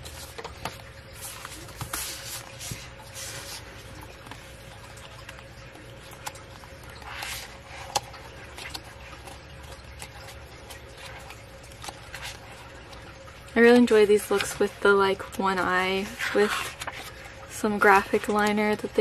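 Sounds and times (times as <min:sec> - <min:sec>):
pages turning and rustling: 0:00.0 - 0:12.7, 0:16.0 - 0:17.3
faint steady hum: 0:00.0 - 0:19.0.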